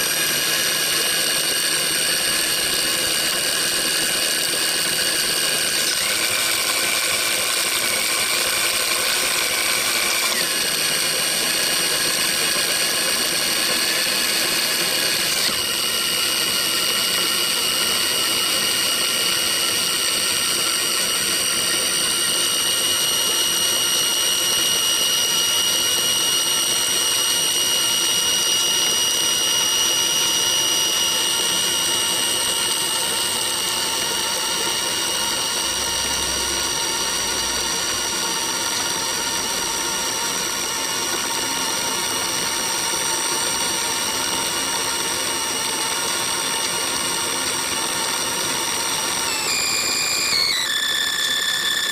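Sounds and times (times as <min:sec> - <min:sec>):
electric motor high-pitched whine: 0:00.0 - 0:51.9.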